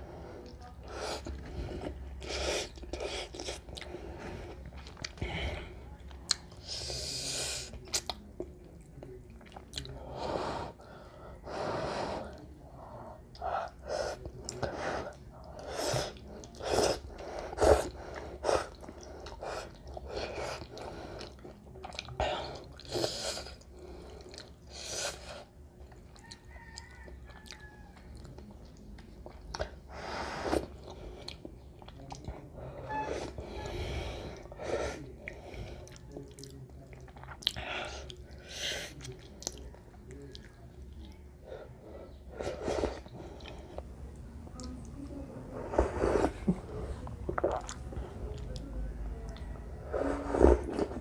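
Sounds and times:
chewing and wet mouth sounds: 0:00.4 - 0:10.1, 0:13.2 - 0:29.9, 0:30.5 - 0:32.5, 0:34.3 - 0:41.4, 0:42.3 - 0:45.1, 0:47.0 - 0:49.6
slurping noodles: 0:13.9 - 0:21.4, 0:42.3 - 0:43.8, 0:45.6 - 0:46.6, 0:49.9 - 0:51.0.

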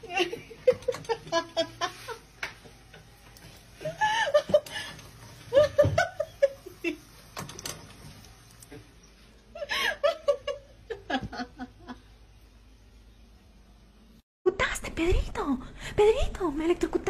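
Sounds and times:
person laughing: 0:03.8 - 0:04.9.

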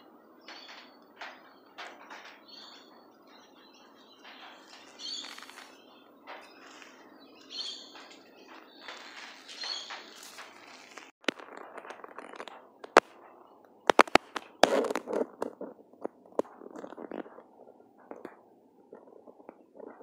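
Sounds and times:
sharp clicks and knocks: 0:00.5 - 0:03.0, 0:07.9 - 0:20.0.

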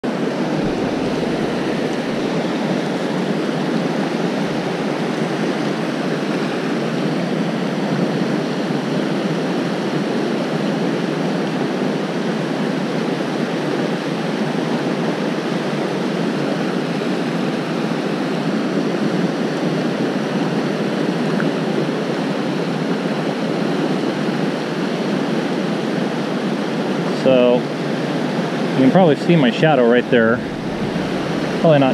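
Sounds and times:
river rushing over rocks: 0:00.0 - 0:31.9.

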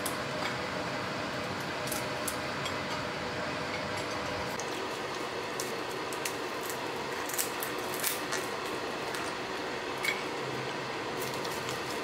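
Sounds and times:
steady background hum: 0:00.0 - 0:12.0
dried squid tearing: 0:05.6 - 0:08.8.

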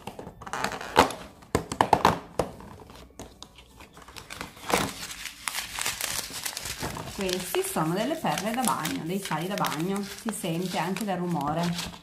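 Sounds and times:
packaging crinkling: 0:02.8 - 0:12.0
cardboard tearing: 0:04.2 - 0:12.0.

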